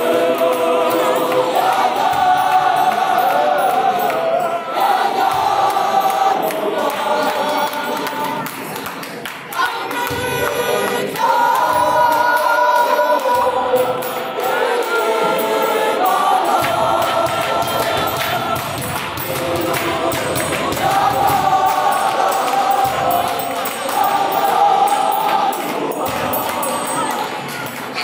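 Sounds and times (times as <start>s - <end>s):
gospel choir singing: 0.0s - 28.0s
women singing close to microphone: 9.6s - 27.8s.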